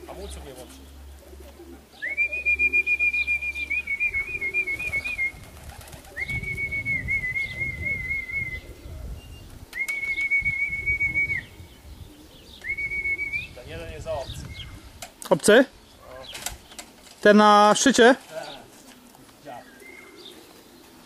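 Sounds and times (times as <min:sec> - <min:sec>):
person whistling with trill: 0:06.2 - 0:08.6, 0:09.8 - 0:11.5.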